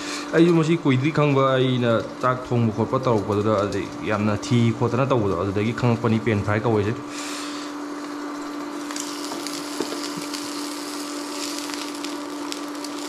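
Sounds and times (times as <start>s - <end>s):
steady hum: 0.0s - 13.0s
eggs sizzling in a pan: 7.8s - 13.0s.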